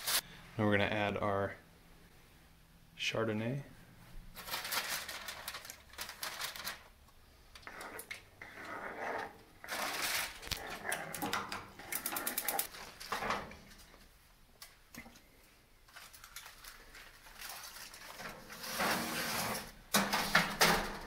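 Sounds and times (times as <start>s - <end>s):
aluminium foil crinkling: 4.3s - 8.2s, 9.6s - 11.0s, 15.4s - 18.7s.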